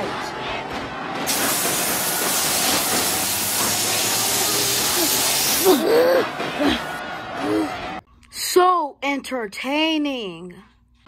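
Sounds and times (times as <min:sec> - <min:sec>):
water jet spray hissing: 0:01.3 - 0:05.8
person crying out: 0:05.0 - 0:06.3.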